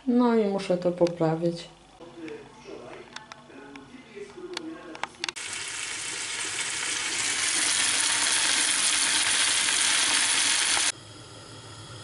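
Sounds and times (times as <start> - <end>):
onion sizzling in a frying pan: 5.4 - 11.8.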